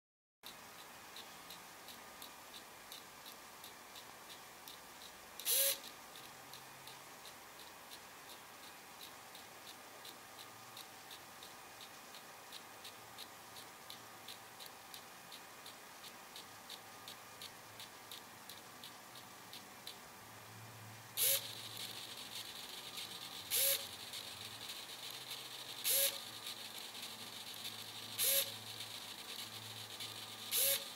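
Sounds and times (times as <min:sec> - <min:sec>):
servo motor ticking: 0:00.4 - 0:20.0, 0:21.2 - 0:30.9
faint steady hiss: 0:00.4 - 0:30.9
servo motor whirring: 0:05.4 - 0:05.9, 0:21.2 - 0:30.9.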